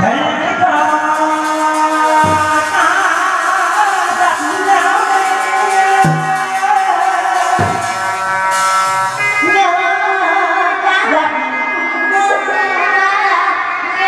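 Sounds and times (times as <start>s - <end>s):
drum strokes: 1.2s - 9.5s.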